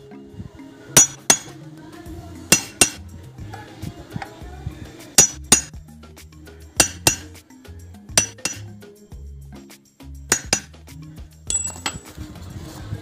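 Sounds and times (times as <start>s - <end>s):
background music with bass line: 0.0s - 13.0s
metal-on-metal taps: 2.5s - 3.0s, 5.2s - 5.7s, 6.8s - 7.3s, 8.2s - 8.6s, 10.3s - 10.7s.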